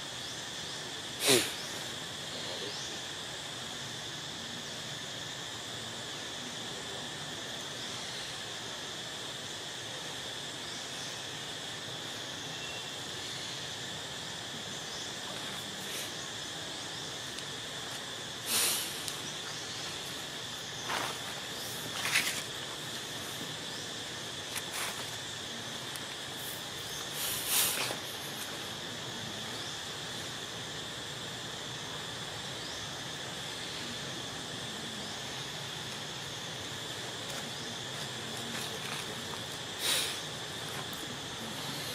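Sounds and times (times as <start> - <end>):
insect drone: 0.0 - 41.9
rustling noise: 20.8 - 23.5, 24.5 - 25.2.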